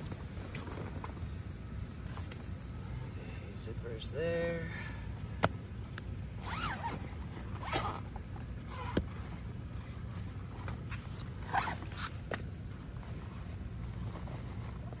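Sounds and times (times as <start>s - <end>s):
zipper rasping open: 6.4s - 12.2s.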